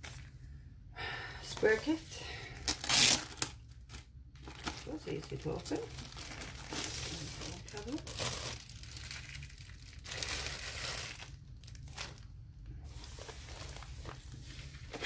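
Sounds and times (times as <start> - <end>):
wrapping crinkling and rustling: 0.0 - 0.5, 1.5 - 15.0.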